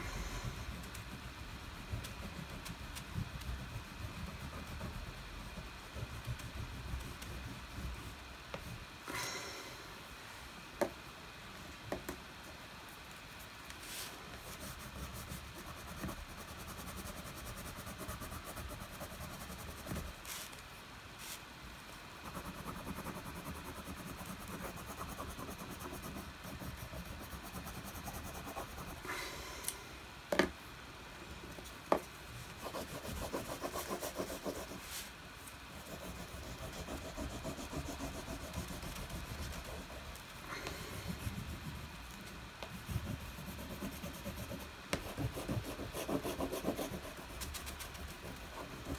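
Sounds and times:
crayon rubbing on paper: 0.0 - 8.8, 32.6 - 35.1, 35.7 - 41.8, 42.7 - 48.9.

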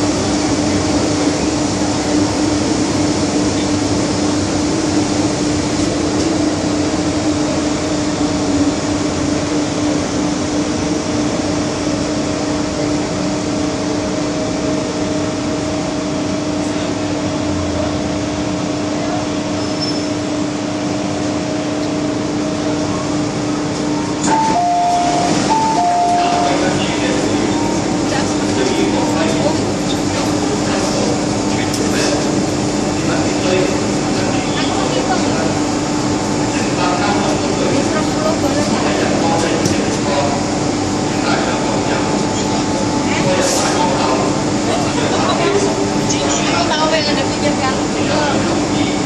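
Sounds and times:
train rolling noise: 0.0 - 49.0
two-note door chime: 24.3 - 26.6.

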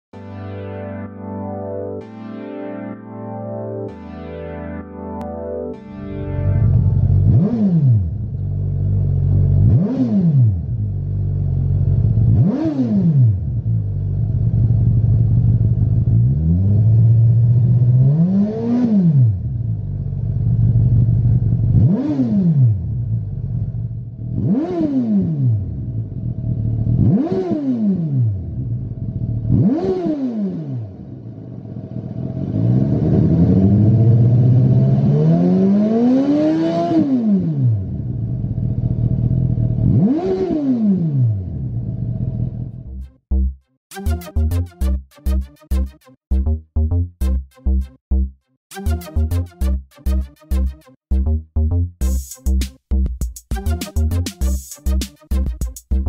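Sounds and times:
motorcycle engine revving: 6.7 - 43.0.

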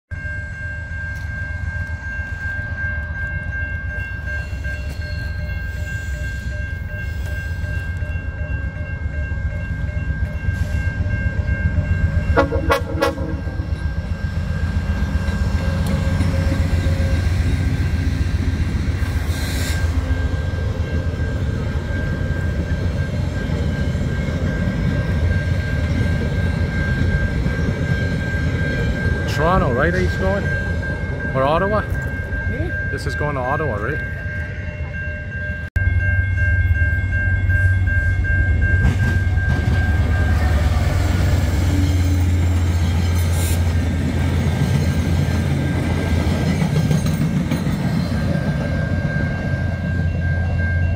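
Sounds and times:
crossing warning bell ringing: 0.1 - 50.9
diesel locomotive passing: 0.1 - 50.9
passenger cars rumbling: 12.1 - 33.8
train horn blast: 12.3 - 13.8.

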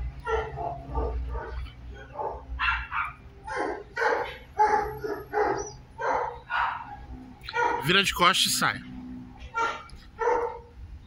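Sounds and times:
puppy barking: 0.2 - 7.9, 9.4 - 10.7.

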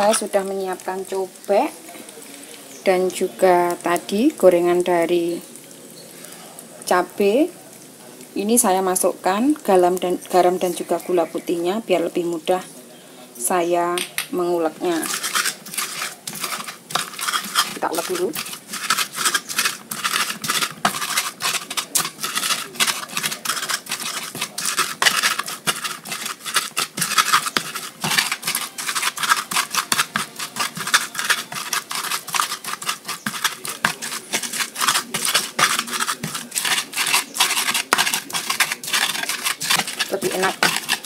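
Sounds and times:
pestle grinding in a mortar: 0.0 - 1.2, 14.6 - 41.0.

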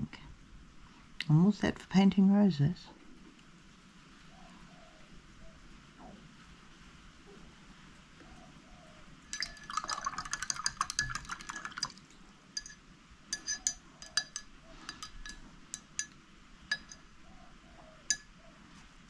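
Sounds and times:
brush clinking against glass jar: 9.3 - 17.1, 18.0 - 18.4.

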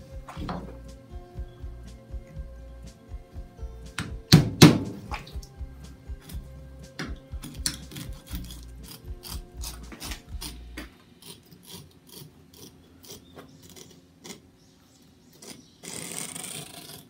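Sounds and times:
low hum: 0.0 - 11.3
knife scraping fish bones: 7.4 - 14.4.

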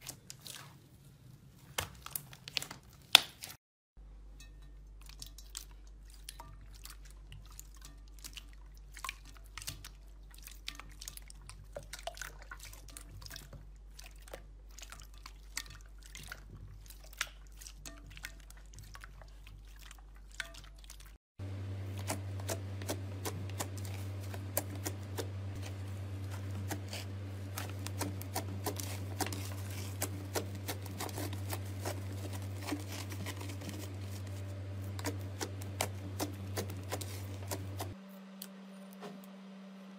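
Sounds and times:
low hum: 21.4 - 39.9.

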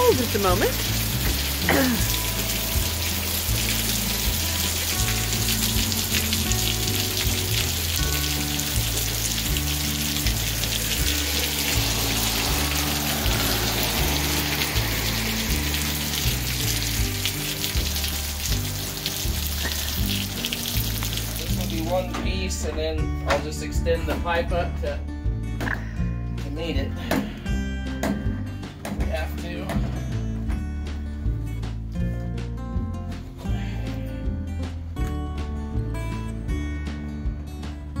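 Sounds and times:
heavy rain and hail pattering: 0.0 - 21.8
background music with bass: 0.0 - 38.0.

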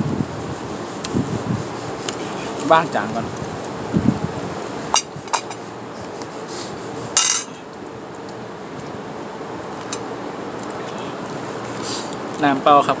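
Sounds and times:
background hiss: 0.0 - 13.0
tableware clicking and clinking: 5.0 - 5.6, 7.2 - 7.5.

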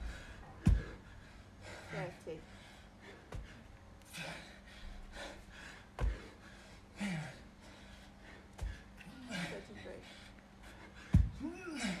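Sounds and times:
person gasping and exhaling: 10.7 - 12.0
dumbbell thud on rubber mat: 11.1 - 11.4.

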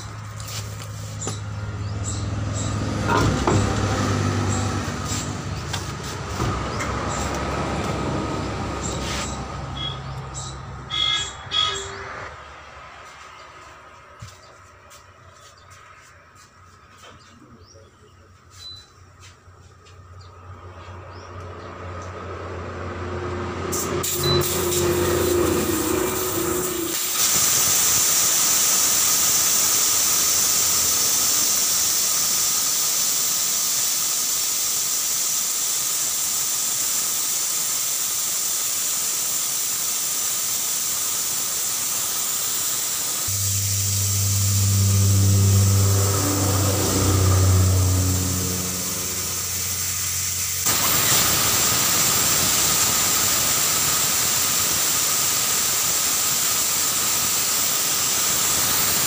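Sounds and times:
air hissing from tyre valve: 0.0 - 11.9, 23.7 - 59.0
low engine hum: 0.0 - 17.7, 43.2 - 51.5.

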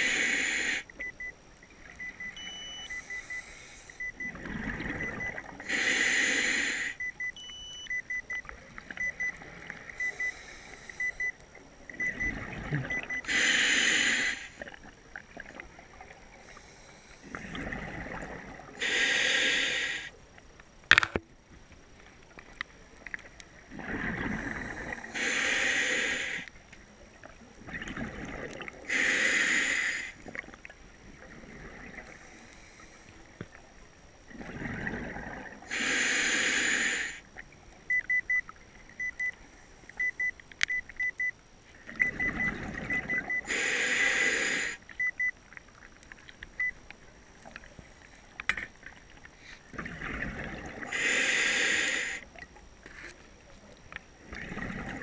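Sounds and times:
breathing through a snorkel: 0.0 - 0.9, 5.0 - 7.1, 10.0 - 11.3, 13.0 - 14.7, 18.8 - 20.1, 24.2 - 26.5, 28.9 - 30.2, 35.7 - 37.2, 43.0 - 44.8, 50.8 - 52.3.

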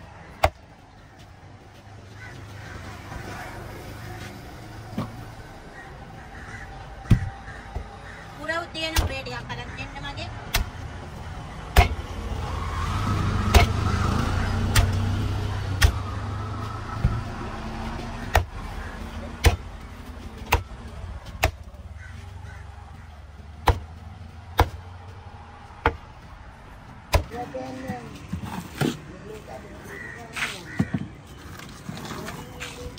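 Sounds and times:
cleaver chopping on wood block: 11.7 - 12.0, 13.5 - 13.8, 19.4 - 19.7, 23.6 - 23.9, 24.6 - 24.8.

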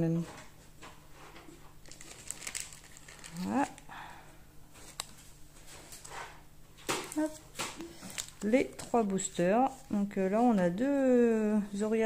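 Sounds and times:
card packaging crinkling: 1.8 - 3.9, 7.0 - 9.0.

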